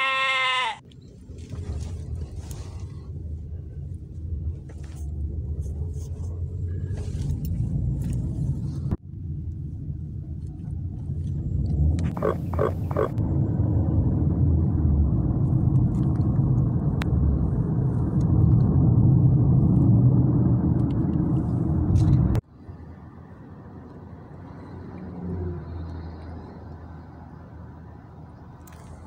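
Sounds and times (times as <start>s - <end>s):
quiet cabin hum: 0.8s - 22.9s
road and engine rumble in car: 0.8s - 29.0s.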